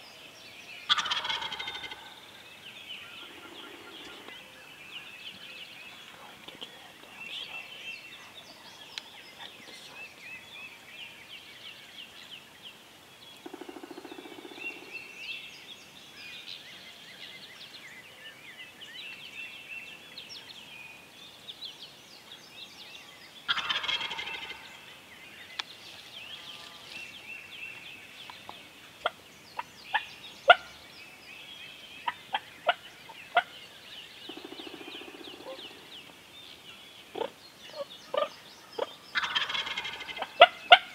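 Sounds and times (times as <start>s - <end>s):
songbirds chirping: 0.0s - 40.9s
turkey gobbling: 0.9s - 2.1s, 23.5s - 24.5s, 29.9s - 30.7s, 37.2s - 40.9s.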